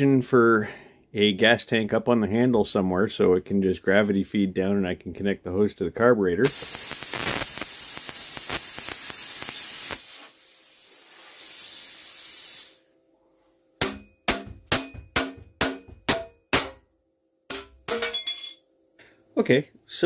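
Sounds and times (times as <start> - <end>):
arc welding crackling hiss: 6.4 - 12.8.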